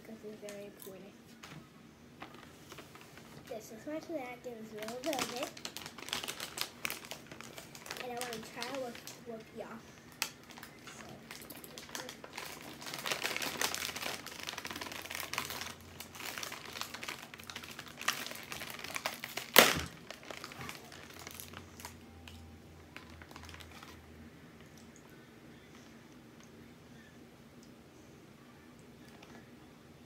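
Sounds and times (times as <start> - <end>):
plastic wrapper crinkling: 2.2 - 3.6, 4.5 - 26.0.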